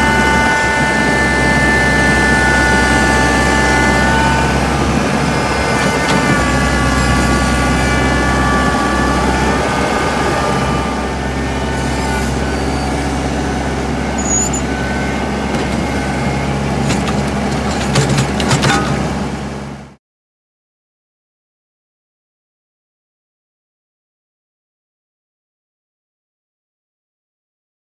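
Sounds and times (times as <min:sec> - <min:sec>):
tractor engine under load: 0:00.0 - 0:20.0
high whine: 0:06.4 - 0:16.6
sharp metal clanks: 0:14.2 - 0:14.7.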